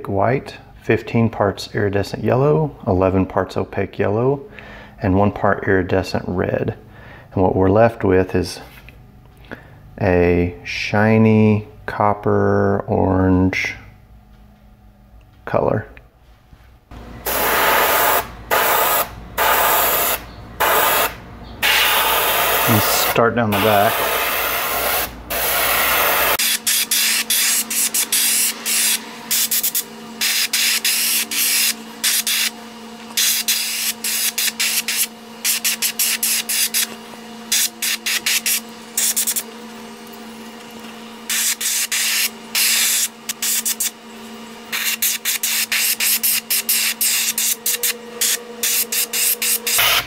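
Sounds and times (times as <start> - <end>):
steady low hum: 0.0 - 50.0
airbrush spraying hiss: 17.3 - 32.5, 37.5 - 39.4, 44.7 - 50.0.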